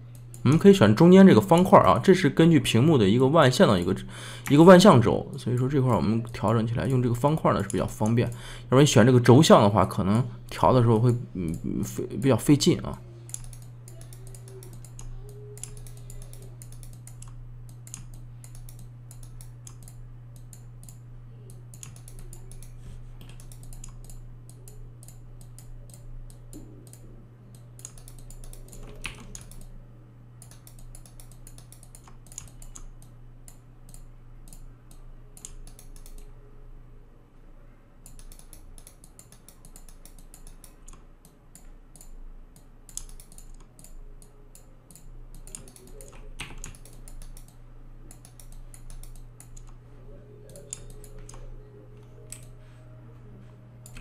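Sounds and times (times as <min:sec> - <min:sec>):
low electrical hum: 0:00.0 - 0:54.0
keyboard and mouse clicking: 0:13.3 - 0:29.7, 0:30.4 - 0:36.3, 0:38.0 - 0:49.8, 0:50.5 - 0:52.5.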